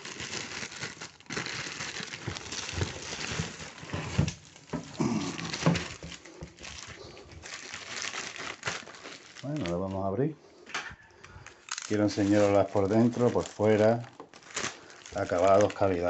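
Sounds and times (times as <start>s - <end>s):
plastic film crinkling: 0.0s - 10.3s, 11.2s - 16.0s.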